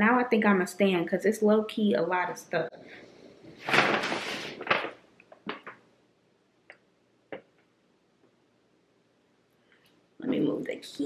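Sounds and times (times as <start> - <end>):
rustling handling noise: 3.4 - 5.9.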